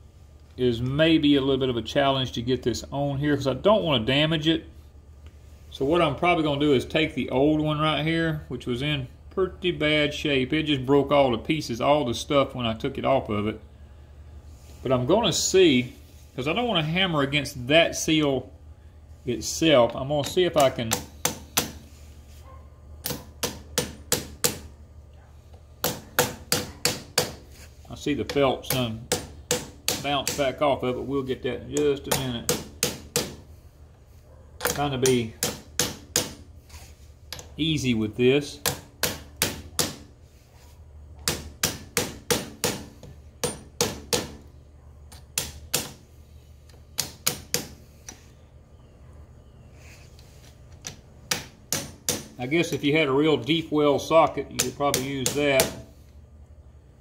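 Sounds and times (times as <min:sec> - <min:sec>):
hammer tapping on metal: 0:23.0 - 0:24.7, 0:25.8 - 0:27.4, 0:28.2 - 0:30.6, 0:32.1 - 0:33.4, 0:34.6 - 0:36.4, 0:51.3 - 0:52.8, 0:54.6 - 0:55.9.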